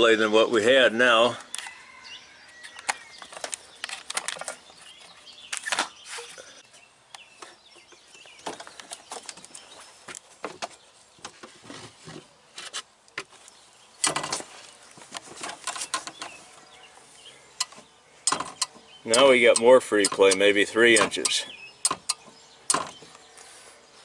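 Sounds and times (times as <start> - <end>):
knocks and clicks: 17.6 - 23.0.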